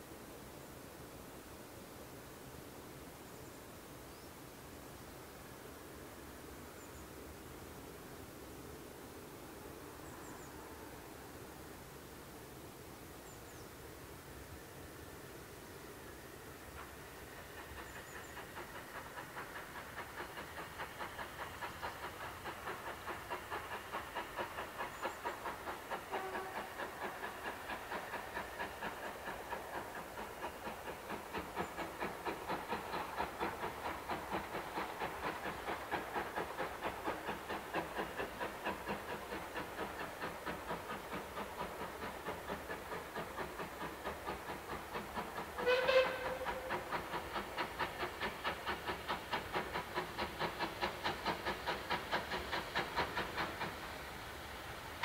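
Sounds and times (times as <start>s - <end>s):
steam locomotive chuffing: 13.9s - 55.0s.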